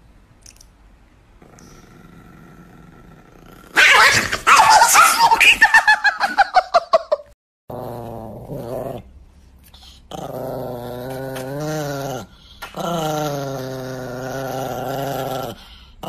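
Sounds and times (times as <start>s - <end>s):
small dog growling low: 1.4s - 3.8s, 7.7s - 9.1s, 9.9s - 16.0s
small dog snarling and yapping: 3.5s - 5.4s.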